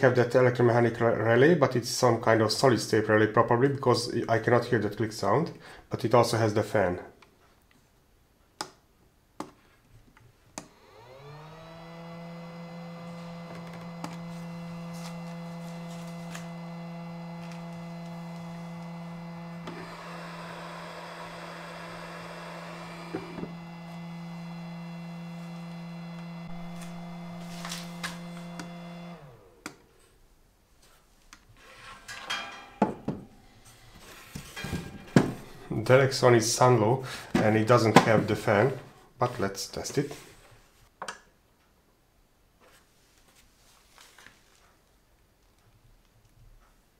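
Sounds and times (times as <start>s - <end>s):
fan humming: 10.6s - 30.2s.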